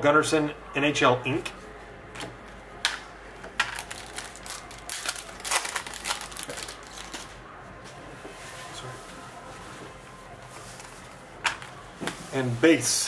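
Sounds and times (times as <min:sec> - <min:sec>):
trading cards rustling and clicking: 0:03.6 - 0:07.3.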